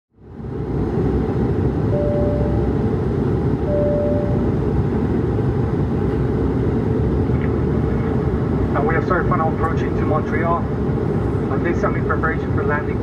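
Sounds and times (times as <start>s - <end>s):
airplane cabin engine noise: 0.1s - 13.0s
brief steady tones: 1.9s - 2.7s, 3.6s - 4.5s.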